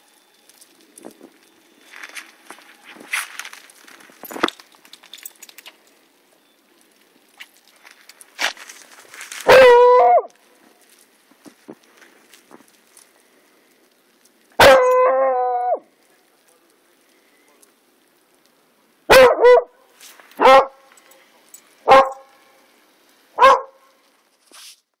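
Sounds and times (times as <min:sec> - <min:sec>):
dog barking: 0:09.4 - 0:10.3, 0:14.6 - 0:15.8, 0:19.1 - 0:19.8, 0:20.4 - 0:20.9, 0:21.8 - 0:22.4, 0:23.4 - 0:23.9
dog baying: 0:09.5 - 0:10.3, 0:23.4 - 0:23.8.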